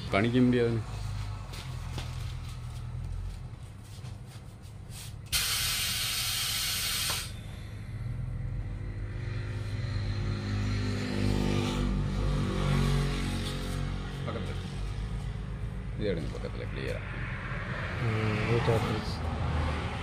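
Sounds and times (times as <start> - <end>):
low engine rumble: 0.0 - 11.0
compressed air hiss: 5.3 - 7.3.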